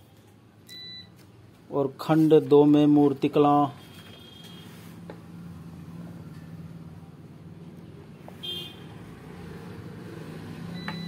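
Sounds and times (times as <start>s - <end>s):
high-pitched beep: 10.8s - 11.0s.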